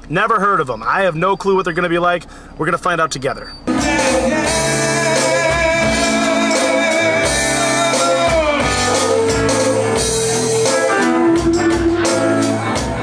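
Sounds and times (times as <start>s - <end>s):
singer holding a long note: 3.7s - 12.4s
rock band playing: 3.7s - 13.0s.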